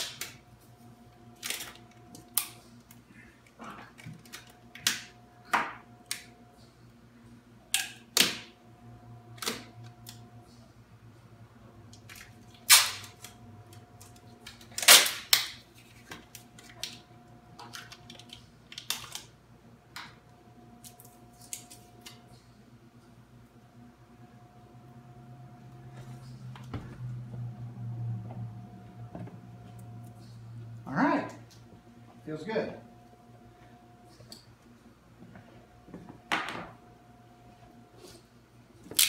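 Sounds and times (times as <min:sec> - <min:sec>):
packing tape ripping: 0:12.1 - 0:13.4, 0:14.0 - 0:15.6.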